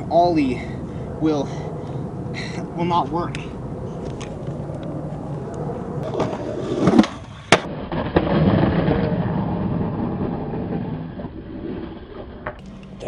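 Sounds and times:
skateboard wheels rolling on concrete: 0:02.4 - 0:13.0
skateboard clacks: 0:06.0 - 0:09.3.

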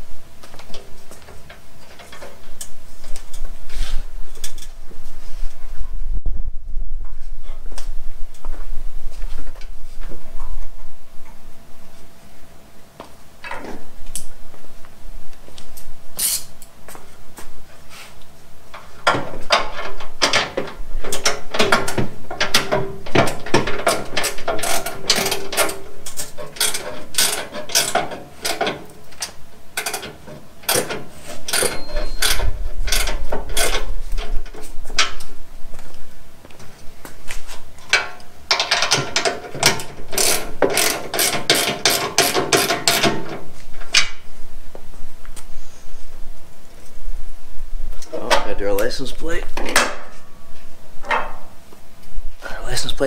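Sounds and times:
ratchet wrench clicking: 0:16.2 - 0:16.5, 0:24.6 - 0:28.6, 0:38.5 - 0:43.2.

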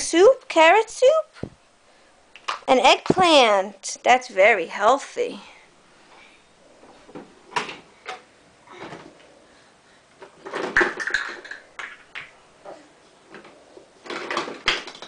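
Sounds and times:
plastic toy dishes clattering: 0:10.4 - 0:12.3.

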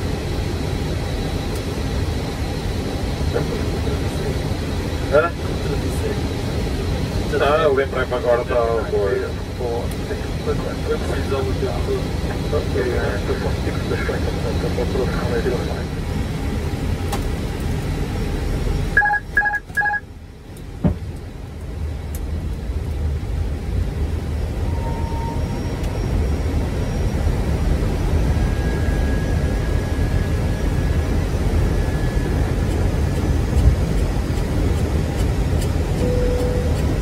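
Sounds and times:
low cockpit noise: 0:00.0 - 0:37.0
short electronic beeps: 0:19.0 - 0:20.0, 0:36.0 - 0:36.8.

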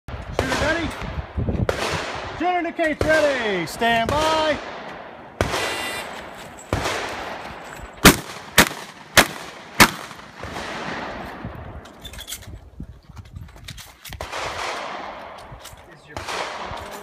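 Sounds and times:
shotgun blasts: 0:00.3 - 0:07.4, 0:08.0 - 0:11.5, 0:14.2 - 0:15.4, 0:16.1 - 0:17.0.

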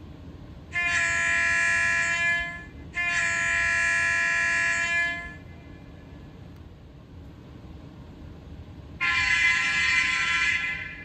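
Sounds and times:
diesel air horn blasts from speaker: 0:00.7 - 0:05.5, 0:09.0 - 0:11.0.

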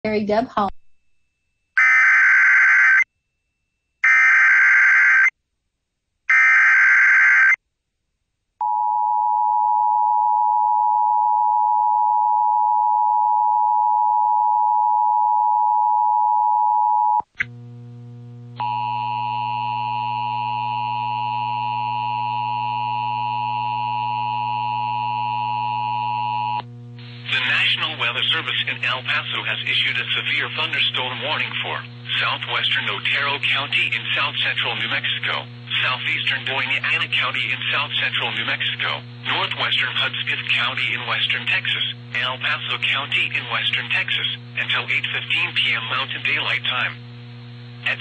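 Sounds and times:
drone of held tones: 0:08.6 - 0:27.9.

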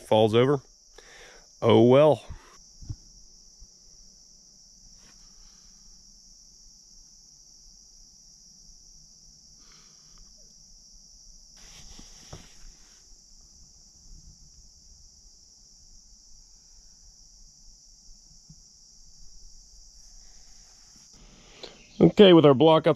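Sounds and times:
crickets chirping: 0:00.0 - 0:22.9
short rustles: 0:11.6 - 0:13.0.

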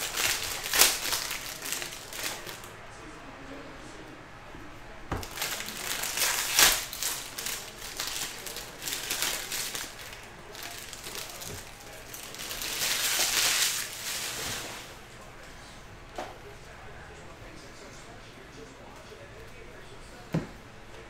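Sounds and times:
foil wrappers tearing and crinkling: 0:00.0 - 0:02.7, 0:05.2 - 0:15.0.

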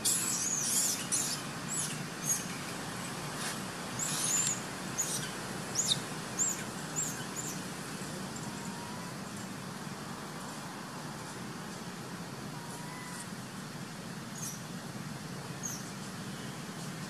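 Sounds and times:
small bird chirping: 0:00.0 - 0:02.6, 0:03.9 - 0:07.6, 0:14.3 - 0:14.6
steady background hiss: 0:00.0 - 0:17.0.

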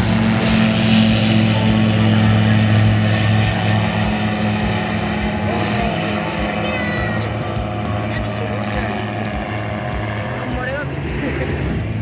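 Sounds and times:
engine humming steadily: 0:00.0 - 0:12.0.

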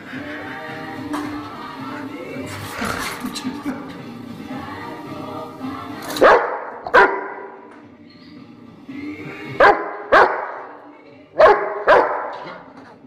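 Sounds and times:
dog barking: 0:06.2 - 0:07.5, 0:09.6 - 0:10.7, 0:11.4 - 0:12.6.

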